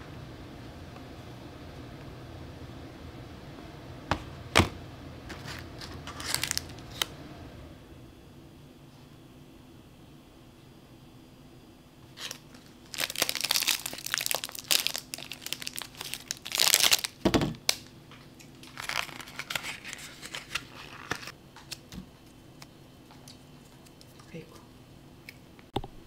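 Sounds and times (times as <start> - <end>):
plastic wrapper crinkling and tearing: 5.4 - 7.1, 12.2 - 21.8.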